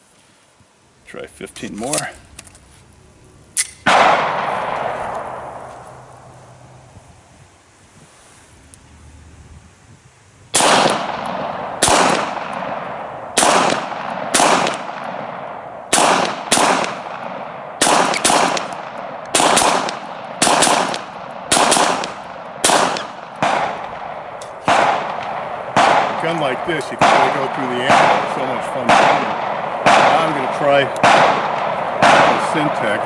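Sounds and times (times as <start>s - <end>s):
pistol shots: 3.6s - 5.6s, 10.5s - 33.0s.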